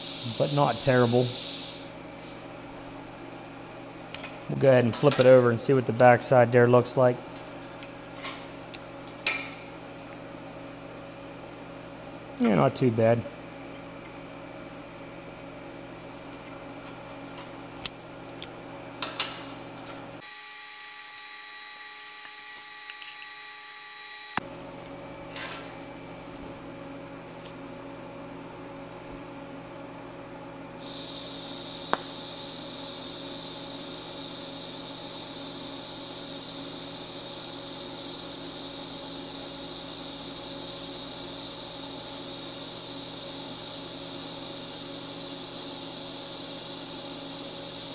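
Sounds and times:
welding arc hissing: 0:00.0 - 0:02.4, 0:30.7 - 0:47.9.

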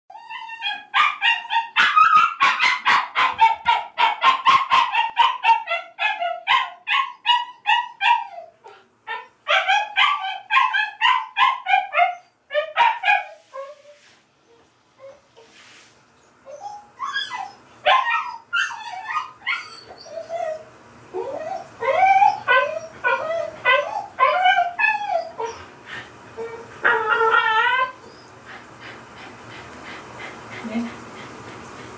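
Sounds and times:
dog yelping: 0:00.1 - 0:13.9, 0:16.5 - 0:20.6, 0:21.2 - 0:25.6, 0:26.4 - 0:28.3.

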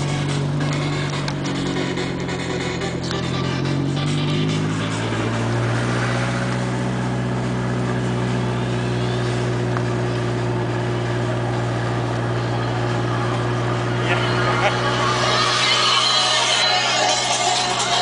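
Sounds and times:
car engine humming at low revs: 0:00.0 - 0:18.0.

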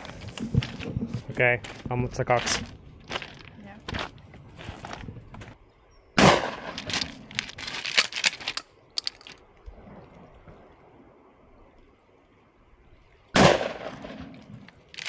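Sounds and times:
shotgun firing: 0:06.2 - 0:06.8, 0:13.4 - 0:14.2.

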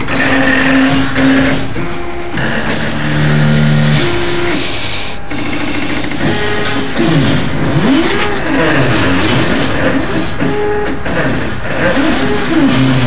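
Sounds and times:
stepper motors whining: 0:00.0 - 0:13.0.

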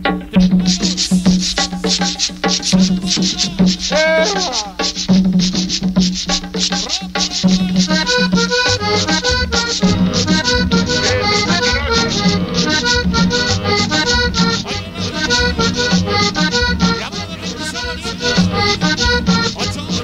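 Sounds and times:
accordion melody: 0:00.0 - 0:20.0
steady dance beat: 0:00.0 - 0:20.0
bass line: 0:07.5 - 0:20.0.

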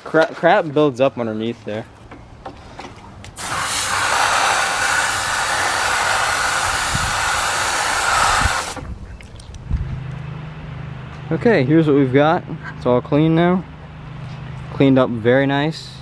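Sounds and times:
water spraying: 0:03.4 - 0:08.9.

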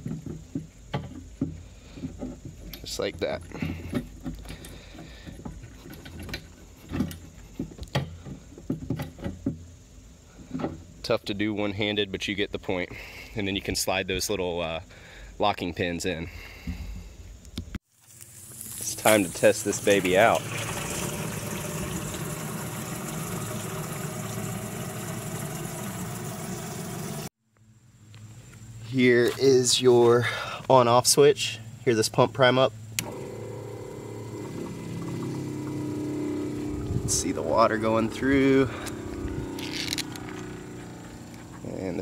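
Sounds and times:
hose water filling plastic tank: 0:00.0 - 0:09.3, 0:17.9 - 0:27.3, 0:33.0 - 0:41.3.

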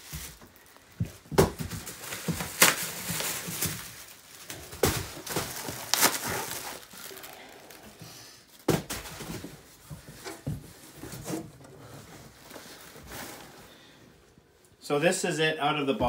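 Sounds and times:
foil wrap crinkling: 0:00.0 - 0:01.0, 0:01.6 - 0:08.2.

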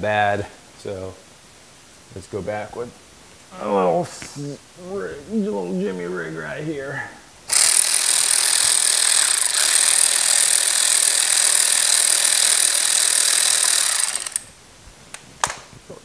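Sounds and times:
cordless power tool running: 0:07.5 - 0:14.5.

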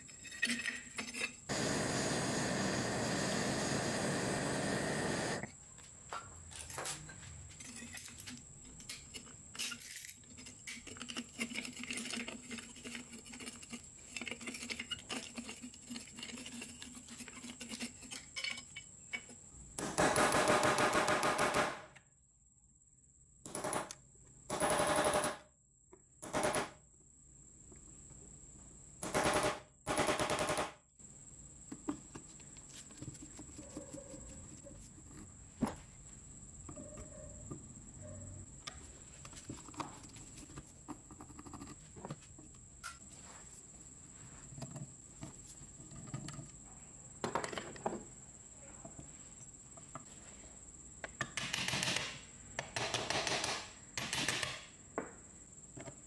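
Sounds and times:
metal clinking and scraping: 0:00.0 - 0:01.5, 0:06.6 - 0:19.4
torch hiss: 0:01.5 - 0:05.5.

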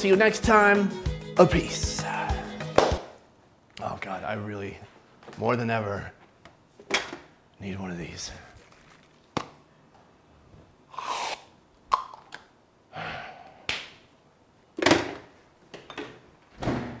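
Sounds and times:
man breathing hard: 0:02.0 - 0:02.8, 0:12.9 - 0:13.7.

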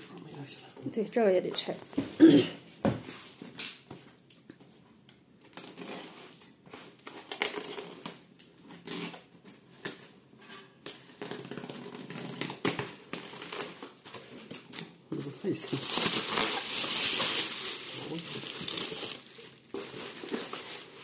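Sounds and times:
tape and cardboard crackling: 0:05.4 - 0:10.1, 0:10.8 - 0:21.0
box cutter slitting packing tape: 0:16.0 - 0:17.8.

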